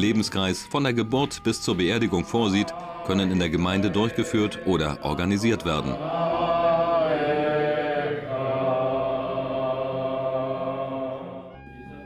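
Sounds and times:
man chanting a prayer: 0.0s - 6.1s.

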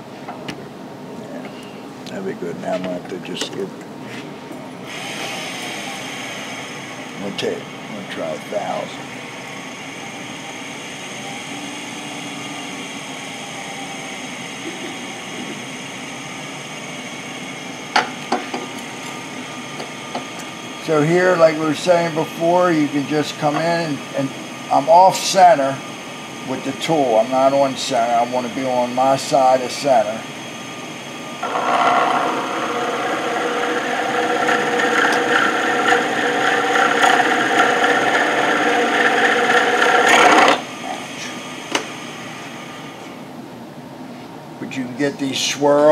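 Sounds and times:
wood lathe running: 4.9s - 7.4s, 31.4s - 41.1s
texturing tool buzzing on wood: 31.4s - 40.6s.

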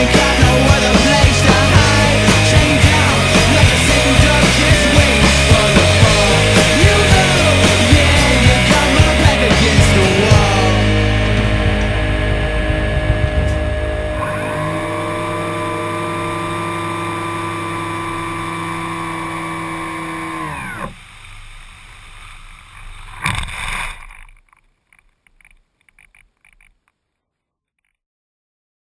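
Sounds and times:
model plane motor and propeller: 14.1s - 27.1s
faint ticks: 24.0s - 27.0s.

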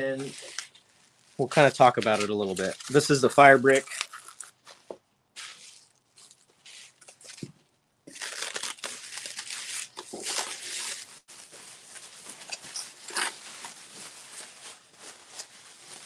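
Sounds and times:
plastic stretch wrap tearing: 0.2s - 4.7s, 8.1s - 16.0s.

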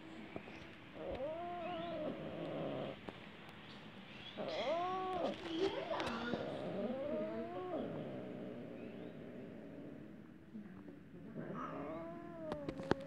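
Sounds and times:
cat yowling: 4.4s - 8.0s, 11.5s - 13.0s.

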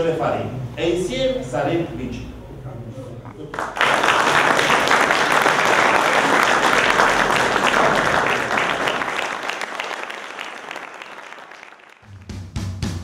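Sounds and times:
audience applauding: 3.5s - 12.3s.

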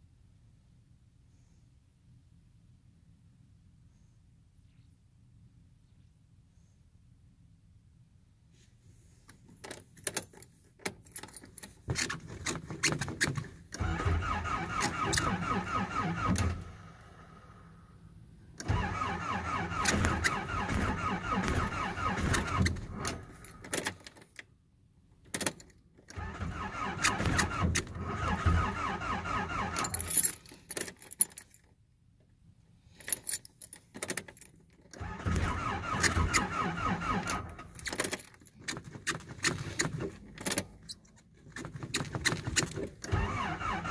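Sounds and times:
keys jingling in ignition: 10.0s - 12.5s, 28.8s - 31.7s, 32.9s - 34.9s
engine cranking by starter: 13.7s - 17.8s, 18.6s - 24.0s, 26.1s - 30.4s, 34.9s - 40.7s, 41.6s - 43.9s.

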